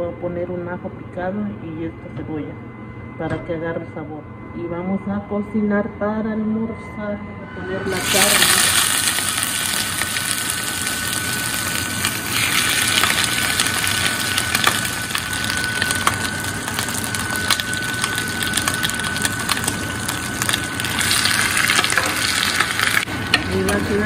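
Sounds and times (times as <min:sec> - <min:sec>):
meat sizzling in lard: 0:08.0 - 0:23.1.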